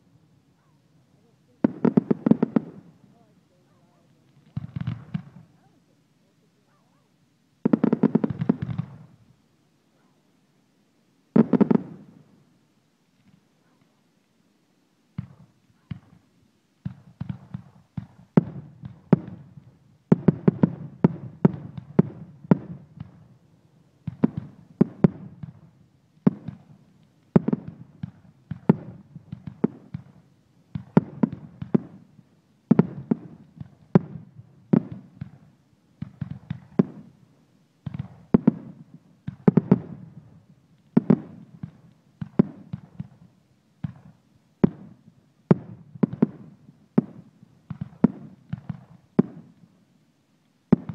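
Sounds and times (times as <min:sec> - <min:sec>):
fireworks launching and bursting: 0:01.2 - 0:05.8, 0:07.6 - 0:09.2, 0:11.3 - 0:12.4, 0:15.1 - 0:23.3, 0:24.0 - 0:37.2, 0:37.8 - 0:49.7, 0:50.7 - 0:50.9.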